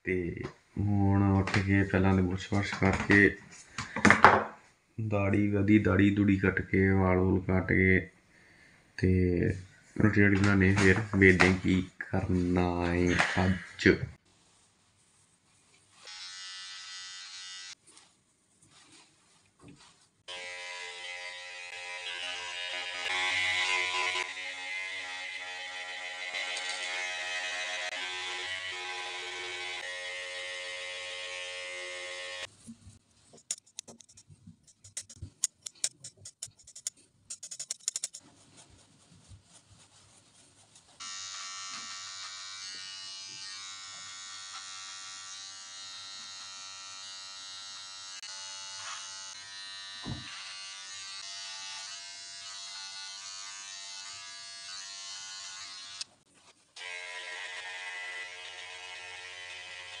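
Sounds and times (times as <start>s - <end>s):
electric clippers buzzing: 16.0s - 17.8s, 20.3s - 32.5s, 41.0s - 56.1s, 56.8s - 60.0s
clicks and taps: 33.4s - 38.2s
thump: 50.0s - 50.3s.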